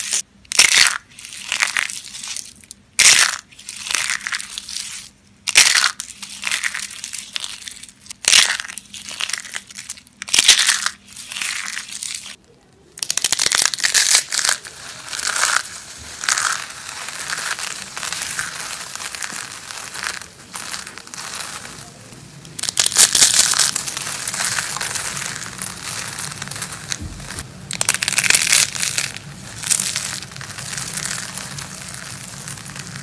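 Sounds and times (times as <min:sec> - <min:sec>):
dry soap crunching and crumbling: 0:00.0 - 0:12.4, 0:13.0 - 0:33.0
fine crackles: 0:13.4 - 0:33.0.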